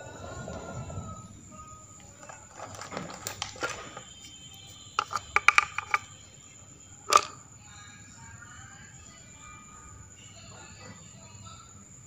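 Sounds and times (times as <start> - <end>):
small hard objects clinking: 5.0 - 6.2, 7.1 - 7.4.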